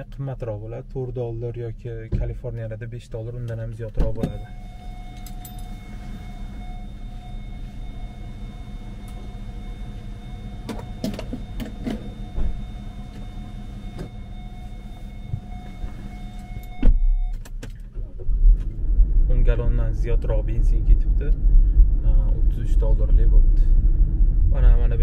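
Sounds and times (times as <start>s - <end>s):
fuel pump hum: 0.0s - 22.8s
faint high tones: 4.2s - 17.4s.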